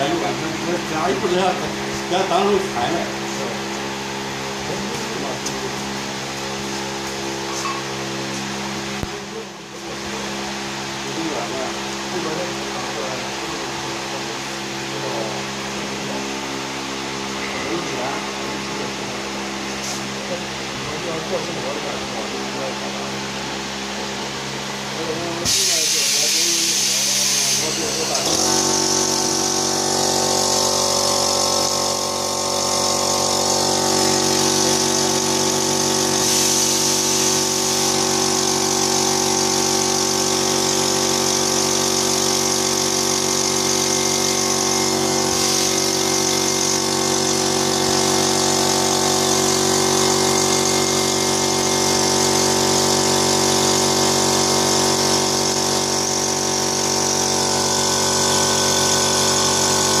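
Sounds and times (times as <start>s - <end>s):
machine motor humming: 0.0s - 60.0s
hiss: 36.2s - 37.9s.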